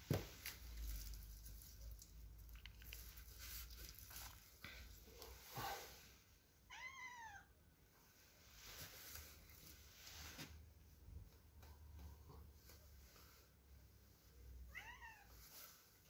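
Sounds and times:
soft rustling: 0.0 - 6.4, 8.0 - 16.0
cat meowing: 6.7 - 7.5, 14.7 - 15.4.

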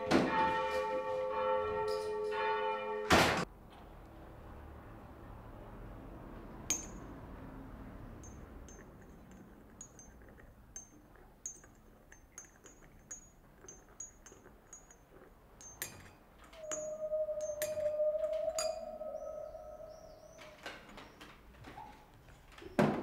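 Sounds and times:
teaspoon clinking against china cup: 6.7 - 7.1, 8.2 - 19.3.

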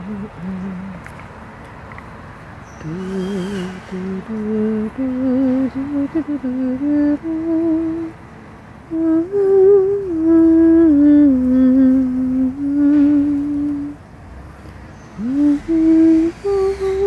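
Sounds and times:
person humming a slow tune: 0.0 - 1.0, 2.8 - 8.2, 8.9 - 14.0, 15.2 - 17.0.

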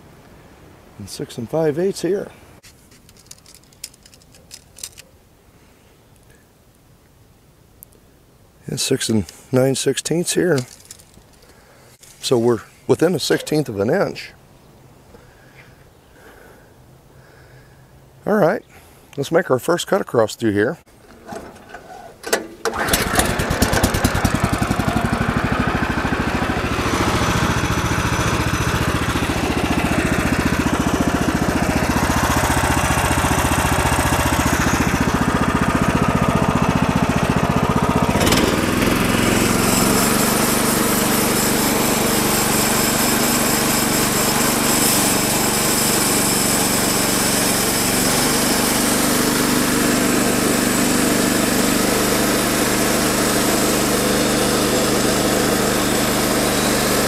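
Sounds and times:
sawmill gas engine running: 21.1 - 57.0.

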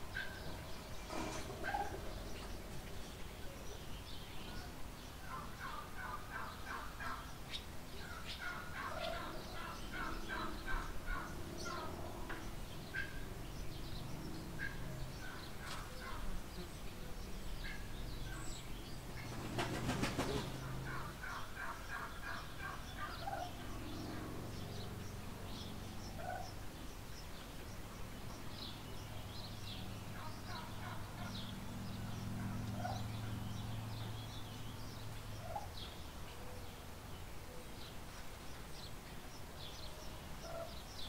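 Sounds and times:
small birds chirping: 0.0 - 41.0
fowl chattering calls: 19.2 - 24.2, 30.2 - 31.4.

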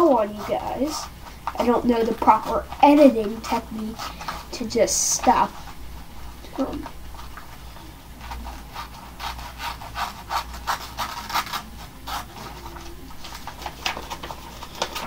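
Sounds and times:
scissors snipping paper: 8.2 - 15.0.

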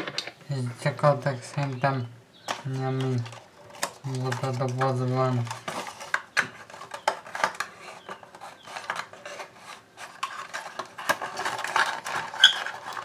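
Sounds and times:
cardboard box rustling and clicking: 3.2 - 13.0.

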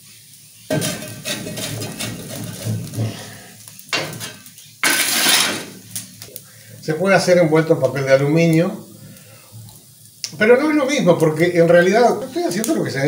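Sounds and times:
metal shovel scraping on brick: 0.7 - 3.0, 4.1 - 5.8.

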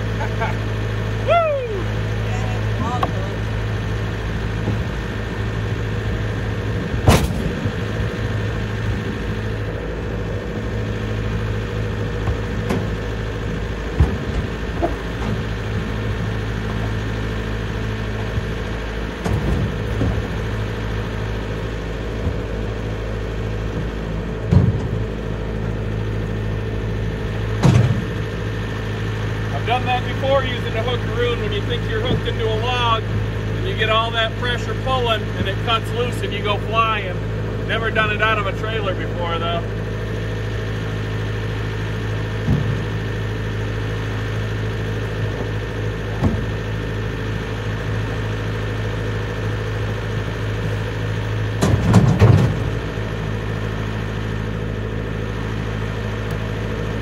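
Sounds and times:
diesel tractor engine idling: 0.0 - 57.0.

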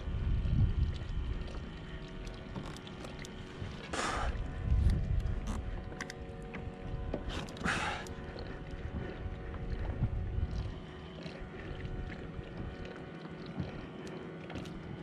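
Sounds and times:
wind on microphone: 0.0 - 1.7, 3.6 - 10.8
water lapping against kayak: 0.0 - 15.0.

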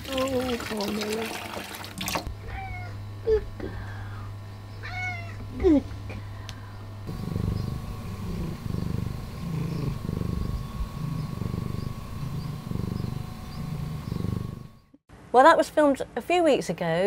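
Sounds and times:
cat meowing: 2.5 - 3.0, 4.8 - 5.4
cat purring: 7.1 - 14.9.

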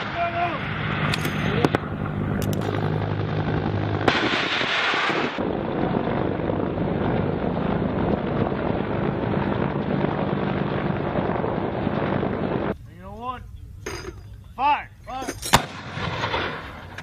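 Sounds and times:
loud rushing burst: 0.0 - 12.8
sharp cracks: 0.0 - 12.8
aircraft engine rumble: 0.2 - 4.1, 5.4 - 14.6.

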